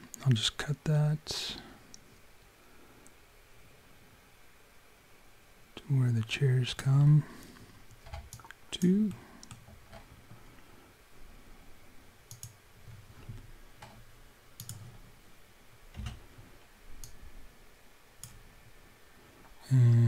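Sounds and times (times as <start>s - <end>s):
mouse and keyboard clicks: 12.3s - 12.6s, 14.6s - 14.9s.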